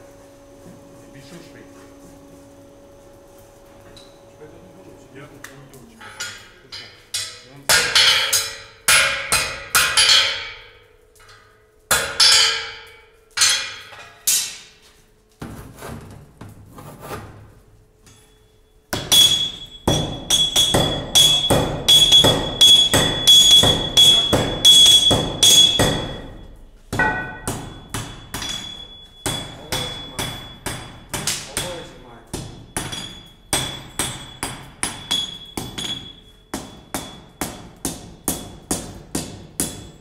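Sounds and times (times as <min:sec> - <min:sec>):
hammer ringing on anvil: 0:06.0 - 0:10.8, 0:11.9 - 0:14.6, 0:18.1 - 0:40.0.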